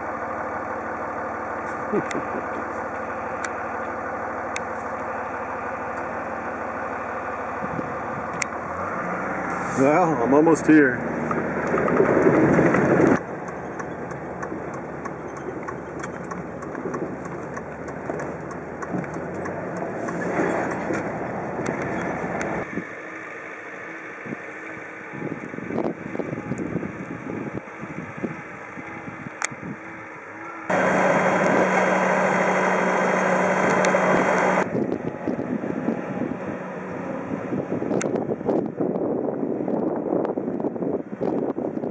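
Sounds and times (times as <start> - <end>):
loader engine running: 0.0 - 41.8
tyre and road noise: 1.0 - 41.9
wind buffeting microphone: 7.6 - 8.4, 9.9 - 22.9, 24.2 - 30.0, 33.5 - 41.9
gravel crackles: 9.5 - 25.6.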